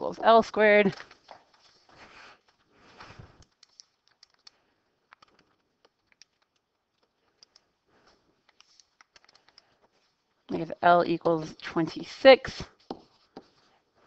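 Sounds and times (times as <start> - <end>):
keys tapping: 3.3 - 7.7.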